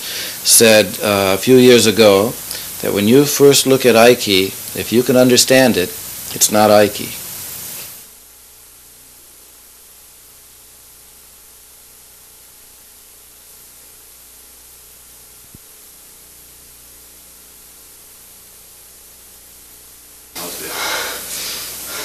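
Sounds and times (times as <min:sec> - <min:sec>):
videotape hiss: 0:00.0 - 0:22.0
faint low hum: 0:08.1 - 0:22.0.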